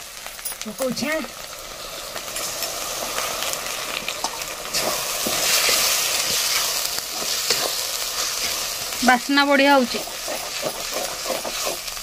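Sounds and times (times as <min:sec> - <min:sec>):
spice paste sizzling in oil: 0:00.0 - 0:12.0
metal spatula scraping pan: 0:04.7 - 0:08.7, 0:09.8 - 0:11.9.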